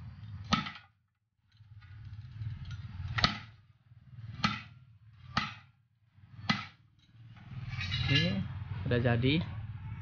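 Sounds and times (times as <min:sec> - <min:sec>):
hammer clanging on steel: 0:06.3 - 0:08.5.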